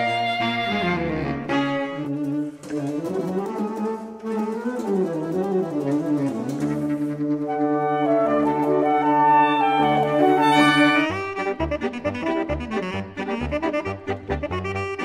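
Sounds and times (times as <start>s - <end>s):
saxophones holding chords: 0.0s - 15.0s.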